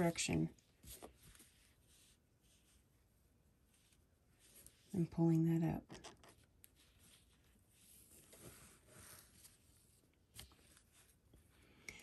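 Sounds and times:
fabric rustling: 0:06.6 - 0:11.3.

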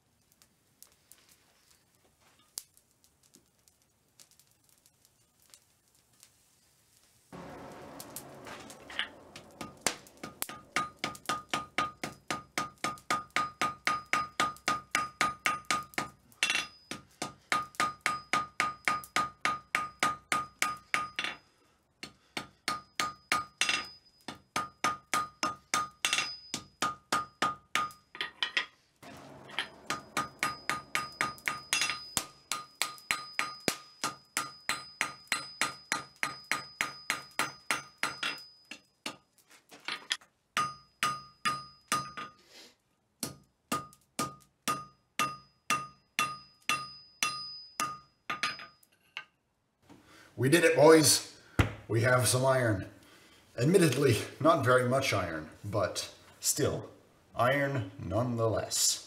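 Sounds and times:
hammer striking iron on anvil: 0:07.4 - 0:21.4, 0:22.0 - 0:28.2, 0:29.0 - 0:39.2, 0:40.6 - 0:42.4, 0:43.2 - 0:48.8.

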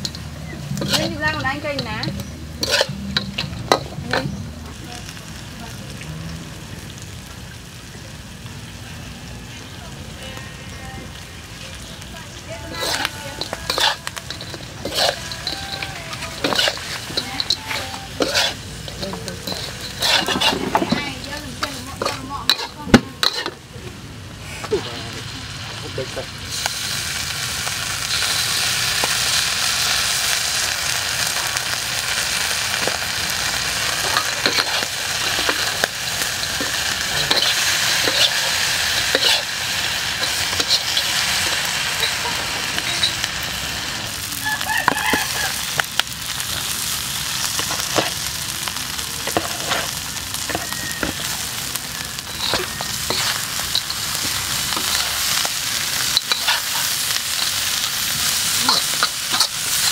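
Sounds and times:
metal spatula scraping a wok: 0:00.0 - 0:04.4, 0:12.6 - 0:23.7, 0:28.0 - 0:30.4, 0:31.2 - 0:43.7, 0:44.6 - 0:59.9
meat sizzling in a wok: 0:00.0 - 0:59.9.

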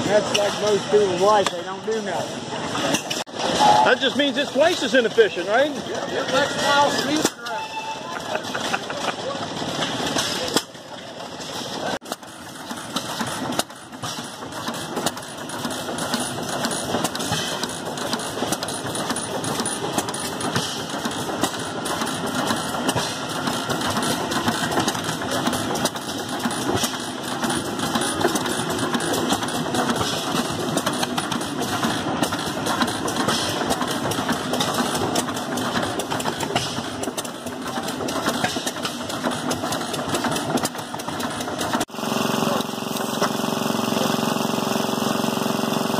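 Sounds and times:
gas engine clattering: 0:00.0 - 0:45.9.

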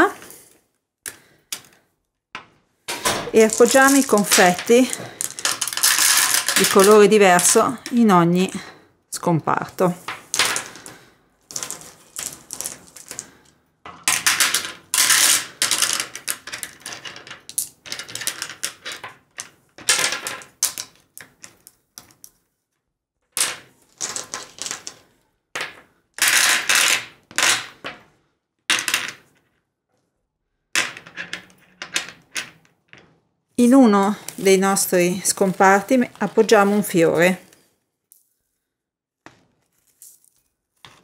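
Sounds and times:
candies clattering in plastic box: 0:02.9 - 0:08.0, 0:09.8 - 0:22.2, 0:33.6 - 0:37.6.

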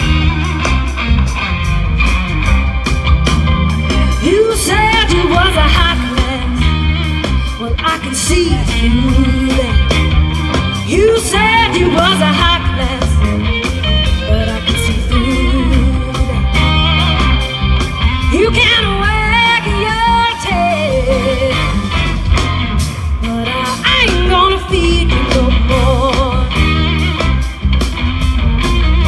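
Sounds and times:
blues-rock band playing: 0:00.0 - 0:29.0
electric guitars: 0:00.0 - 0:29.0
woman singing: 0:03.9 - 0:17.2, 0:18.3 - 0:21.9, 0:23.2 - 0:27.0.

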